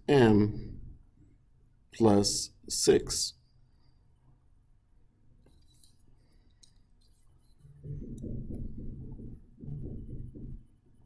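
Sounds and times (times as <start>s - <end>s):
stylus tapping and scratching: 5.4s - 11.0s
low muffled rumble: 7.7s - 10.8s.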